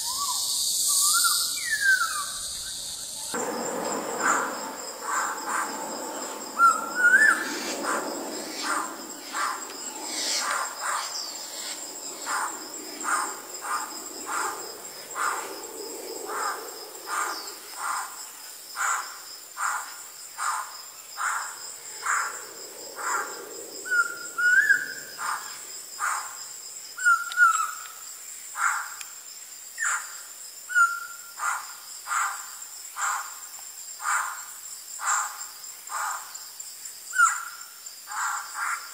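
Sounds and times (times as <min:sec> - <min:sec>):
high insect drone: 0:00.0 - 0:38.9
bird rising whistled phrase: 0:06.6 - 0:07.5.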